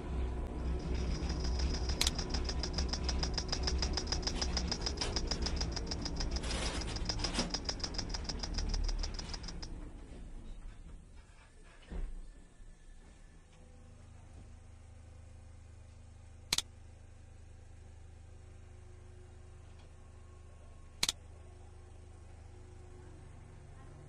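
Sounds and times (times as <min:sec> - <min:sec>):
low rumble: 0:00.0 - 0:09.7
rapid mechanical clicking: 0:00.7 - 0:09.7.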